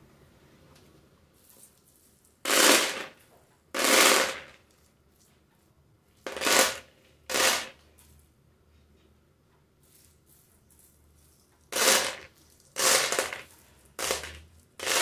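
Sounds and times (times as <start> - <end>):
dry beans pouring into plastic basin: 2.5 - 3.1, 3.8 - 4.5, 6.3 - 7.8, 11.7 - 15.0.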